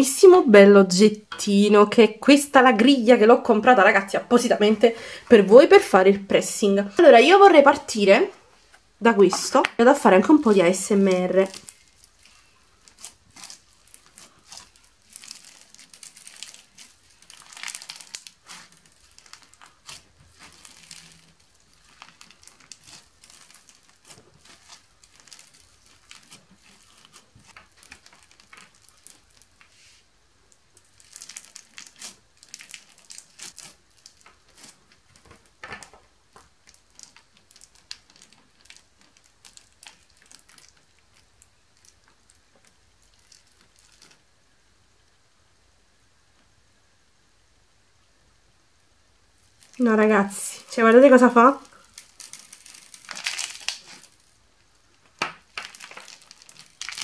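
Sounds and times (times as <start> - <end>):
bead slime crackling and popping: 9.2 - 29.8, 30.5 - 44.3, 49.4 - 57.0.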